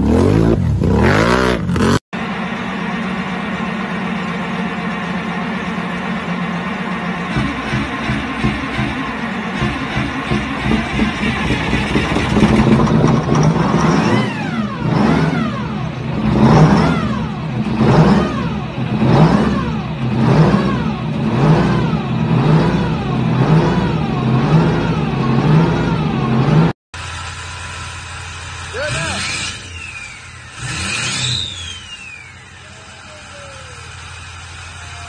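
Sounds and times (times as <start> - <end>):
diesel engine revving: 0.0 - 35.0
high whine sweeping: 29.2 - 35.0.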